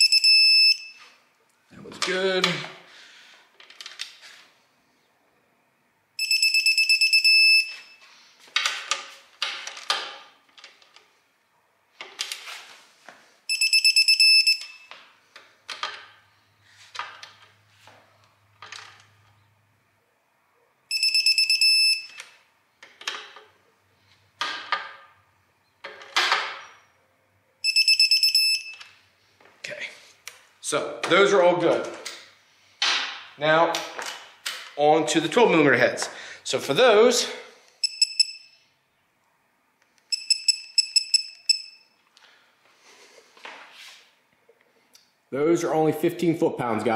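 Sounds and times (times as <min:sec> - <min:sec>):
torque wrench rapid beeping: 0:13.5 - 0:14.8, 0:20.9 - 0:22.2, 0:27.6 - 0:28.7, 0:37.8 - 0:38.5, 0:40.1 - 0:41.8.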